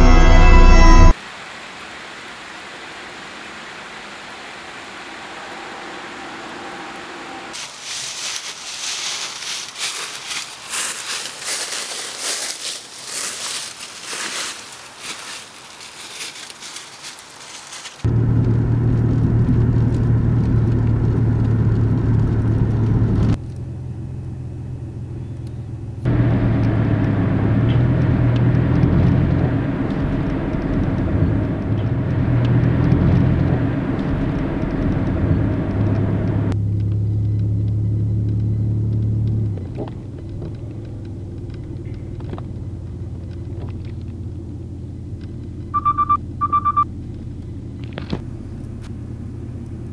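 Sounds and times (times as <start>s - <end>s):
road rumble: 0.0s - 49.9s
car engine inside moving car: 18.0s - 49.9s.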